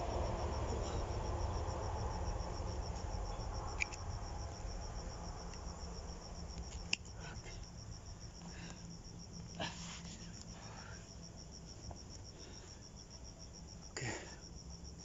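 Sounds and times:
road traffic rumble: 0.0s - 8.7s
cricket chirping: 0.0s - 15.0s.

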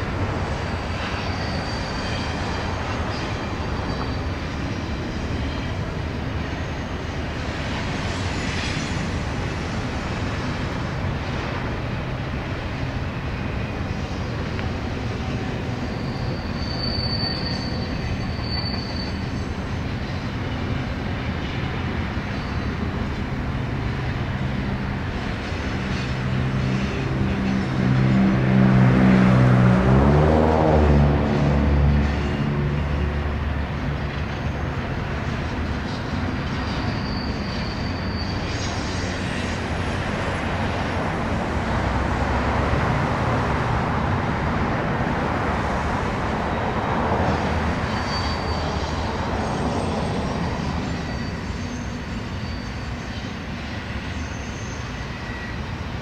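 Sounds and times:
high wheel squeals: 0.0s - 10.6s, 13.4s - 23.2s, 34.0s - 43.4s, 45.9s - 56.0s
freight train rumbling by: 0.0s - 56.0s.

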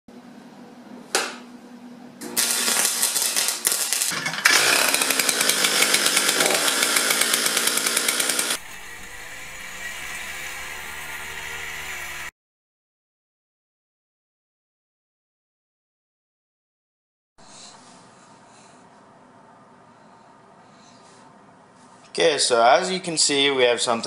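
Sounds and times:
chainsaw running hard: 2.4s - 12.3s
small engine running: 2.4s - 12.3s.

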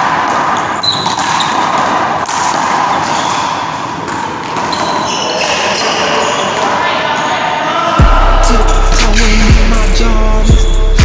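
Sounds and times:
sneaker squeak: 0.6s - 2.1s, 2.8s - 7.8s, 10.5s - 11.0s.

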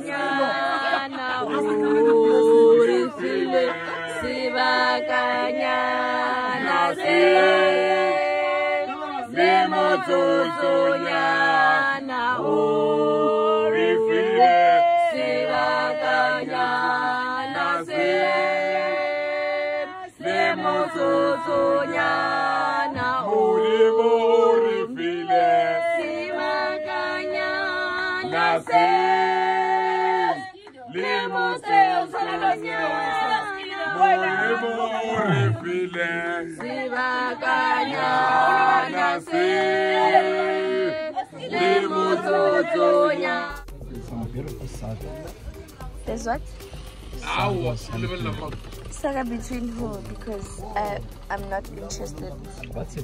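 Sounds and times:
group singing in harmony: 0.0s - 53.0s.

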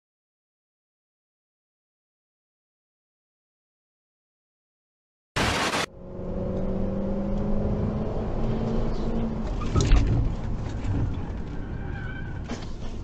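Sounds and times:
tv static burst: 5.4s - 5.9s
road noise: 5.4s - 13.0s.

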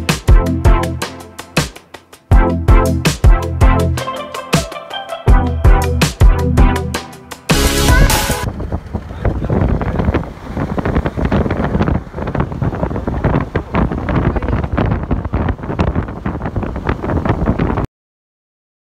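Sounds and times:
road noise: 7.5s - 17.2s
wind buffeting microphone: 7.9s - 17.9s.

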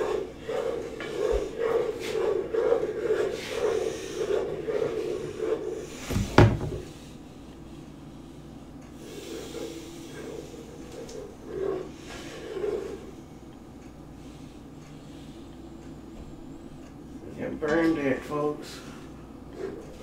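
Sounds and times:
loud knock: 6.1s - 6.9s.

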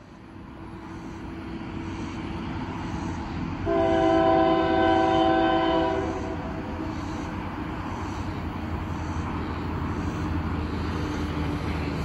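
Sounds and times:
locomotive rumble: 0.0s - 12.0s
train air horn chord: 3.7s - 6.5s.

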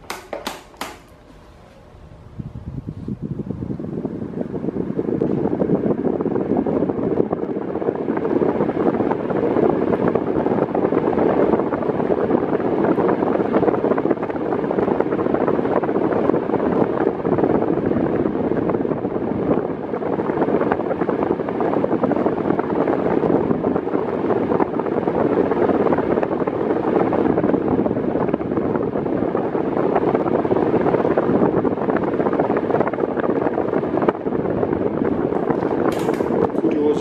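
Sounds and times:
table fan air rush: 0.0s - 37.0s
airflow on microphone: 1.1s - 37.0s.

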